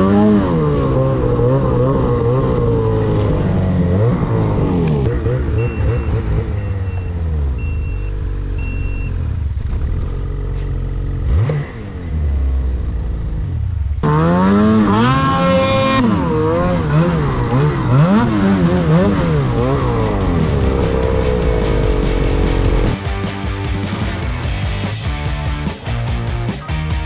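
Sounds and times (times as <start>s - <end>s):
snowmobile engine revving: 0.0s - 25.2s
short high beeps: 5.5s - 9.2s
snowmobile engines idling: 15.5s - 25.2s.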